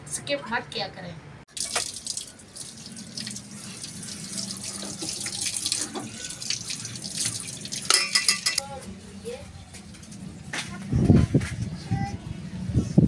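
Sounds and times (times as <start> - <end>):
water running from tap: 1.5 - 8.6
utensil clinking: 4.7 - 8.7.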